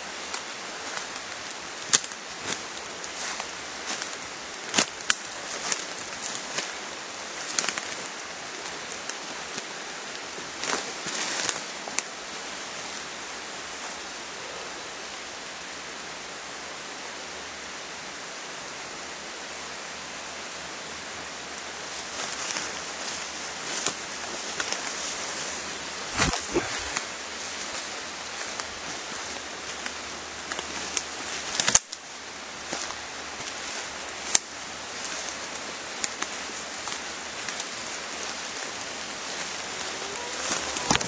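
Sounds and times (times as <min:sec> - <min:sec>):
leaves and twigs crackling underfoot: 0:00.0 - 0:14.2, 0:20.8 - 0:41.0
steady hiss: 0:00.0 - 0:41.0.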